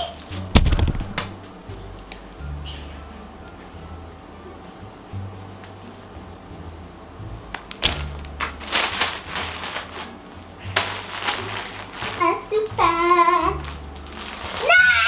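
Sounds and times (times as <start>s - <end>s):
rustling crinkling noise: 0.0s - 2.2s, 7.6s - 15.0s
faint background music: 0.0s - 15.0s.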